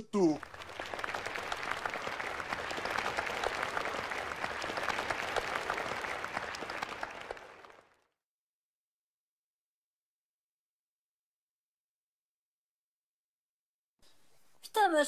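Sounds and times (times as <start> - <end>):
children applauding: 0.3 - 8.0.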